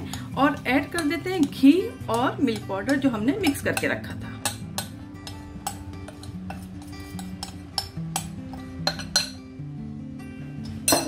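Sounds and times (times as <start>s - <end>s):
background music with held notes: 0.0s - 11.0s
metal spoon clinking on glass bowl: 0.1s - 9.4s
spoon scraping powder: 5.7s - 7.9s.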